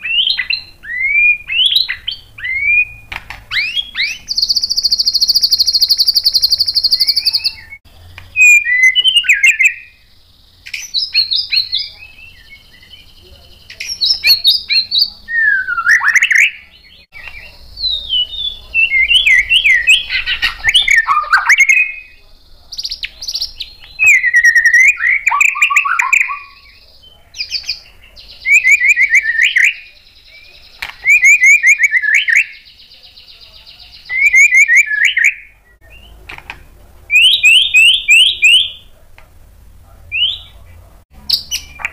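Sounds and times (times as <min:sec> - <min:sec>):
bird singing fast trills: 0:00.0 - 0:36.2, 0:37.1 - 0:38.9, 0:40.1 - 0:40.6, 0:41.2 - 0:41.9.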